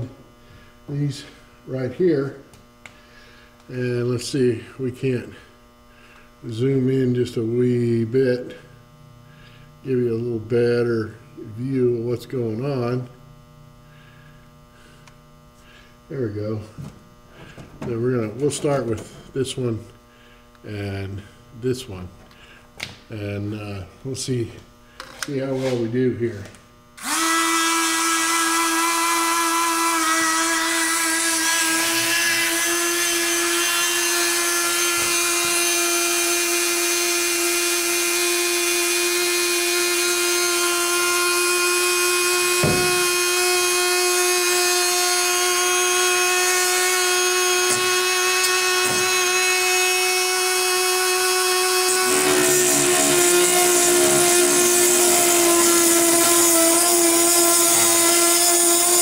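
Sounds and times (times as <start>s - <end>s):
rotary tool high-pitched whine: 0.0s - 59.0s
cutting wheel grinding metal bolt: 30.4s - 41.0s, 42.2s - 59.0s.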